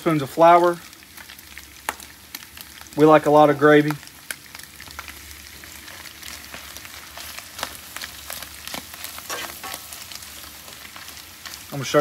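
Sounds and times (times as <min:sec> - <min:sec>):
sausage sizzling in a skillet: 0:00.0 - 0:12.0
metal spatula scraping a pan: 0:09.0 - 0:10.9.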